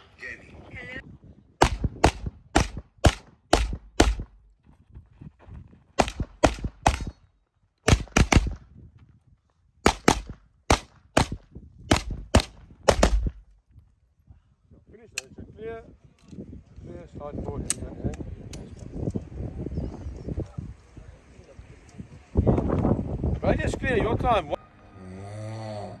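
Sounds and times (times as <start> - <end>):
handgun shots: 1.6 - 4.4, 6.0 - 7.2, 7.9 - 8.6, 9.8 - 13.4.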